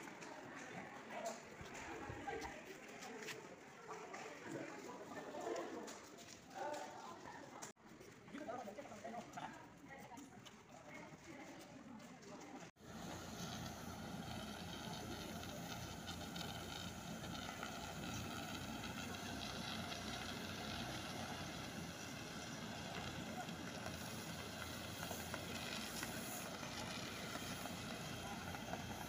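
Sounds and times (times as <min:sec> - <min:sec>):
fire engine pump engine running: 0:12.8 - 0:29.0
hose spraying water: 0:12.8 - 0:29.0.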